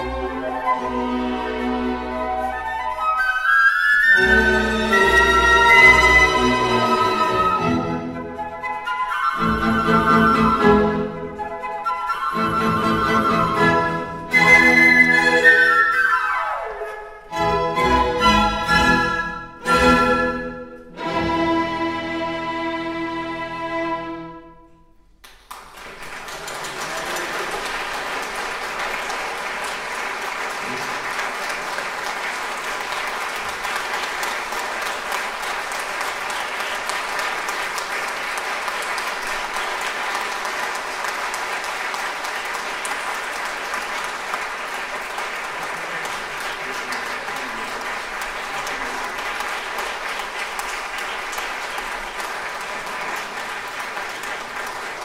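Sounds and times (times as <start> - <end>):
audience applauding: 0.0 - 16.5, 25.2 - 55.0
flutes and string orchestra chord: 0.0 - 24.6.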